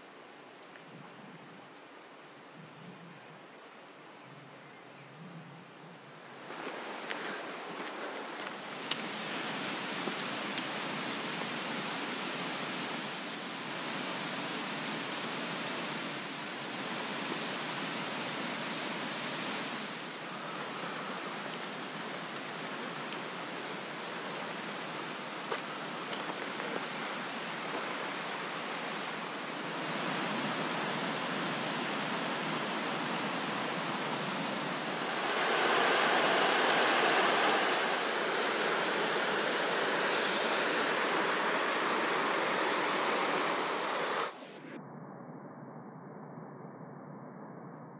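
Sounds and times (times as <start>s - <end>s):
stream rushing over boulders: 6.2s - 44.4s.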